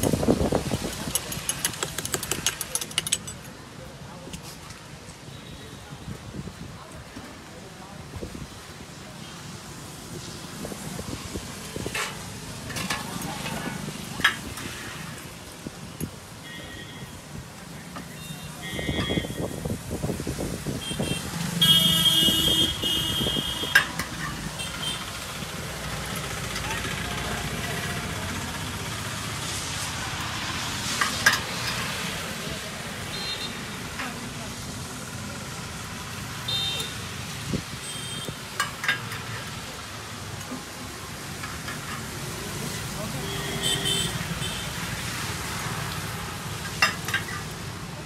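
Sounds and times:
utensils clinking: 0:00.8 - 0:03.6, 0:11.8 - 0:14.7, 0:38.6 - 0:39.5, 0:46.6 - 0:47.6
steady rain falling: 0:03.4 - 0:18.7, 0:19.7 - 0:48.0.

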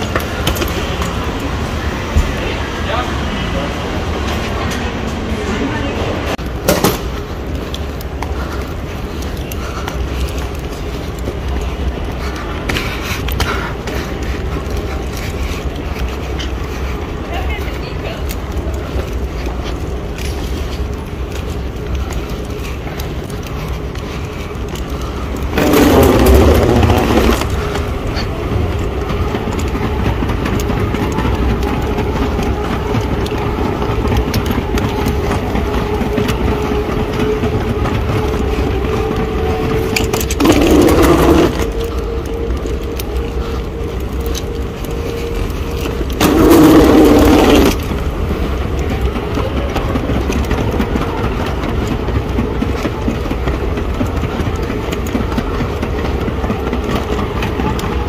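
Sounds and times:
moving walkway rumbling: 0:00.0 - 0:58.0
rumbling and scraping: 0:00.0 - 0:58.0.

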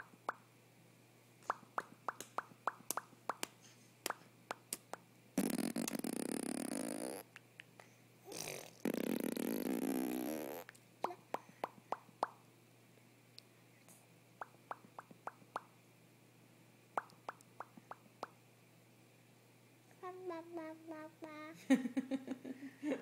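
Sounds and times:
baby lip pops: 0:01.5 - 0:06.2
baby blowing a raspberry: 0:05.4 - 0:07.2, 0:08.3 - 0:10.6.

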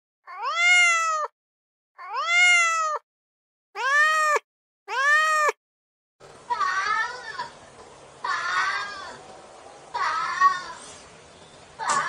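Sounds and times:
cat meowing: 0:00.3 - 0:01.3, 0:02.0 - 0:03.0, 0:03.8 - 0:05.6.

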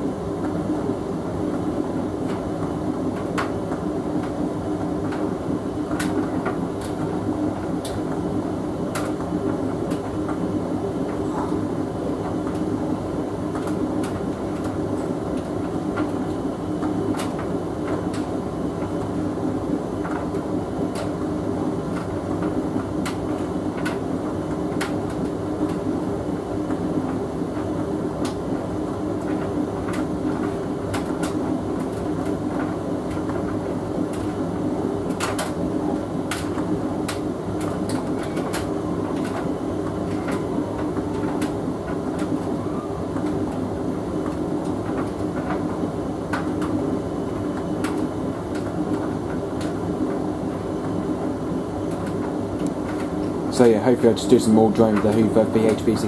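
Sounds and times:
tumble dryer humming: 0:00.0 - 0:56.0
light clicks of tumbling load: 0:08.9 - 0:11.6, 0:20.0 - 0:25.9, 0:35.0 - 0:46.8, 0:51.8 - 0:56.0.

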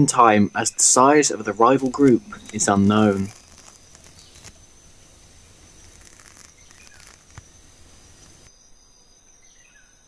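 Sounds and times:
steady hiss: 0:00.0 - 0:08.5
faint rustling and ticks: 0:01.7 - 0:08.5.

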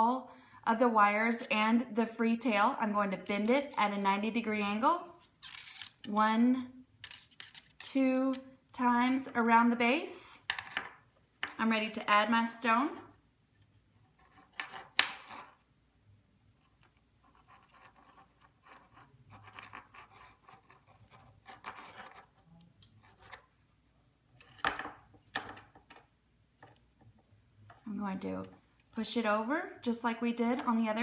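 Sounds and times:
wire rustling and scraping: 0:05.2 - 0:06.1, 0:07.0 - 0:07.9.

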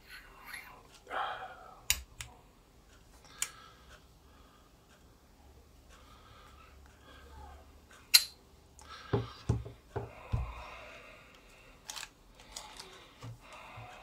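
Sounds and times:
sharp metallic click: 0:08.1 - 0:08.4.

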